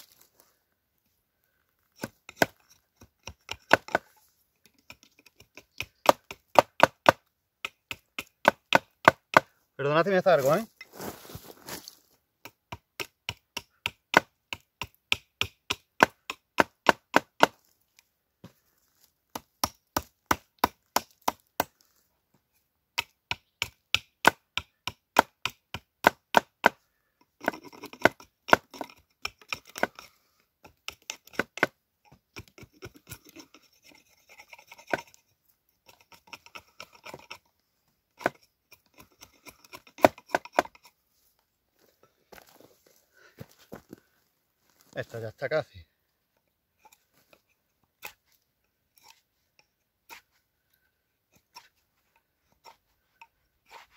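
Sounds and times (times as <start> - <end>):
wood shaving scraping: 1.8 - 7.2, 27.4 - 41.4, 51.3 - 53.9
hatchet chopping wood: 2.0 - 9.5, 12.4 - 17.6, 19.3 - 21.8, 22.9 - 26.8, 27.4 - 35.2, 35.8 - 37.4, 38.2 - 40.9.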